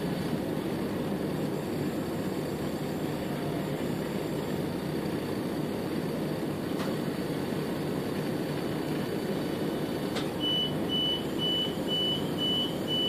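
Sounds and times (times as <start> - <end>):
door warning beeps: 10.4 - 13.0.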